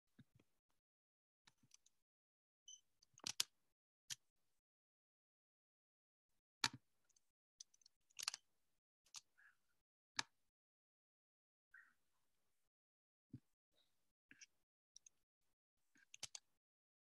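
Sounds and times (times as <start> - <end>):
computer mouse and keyboard clicks: 3.2 - 3.5, 7.8 - 8.4, 16.0 - 16.4.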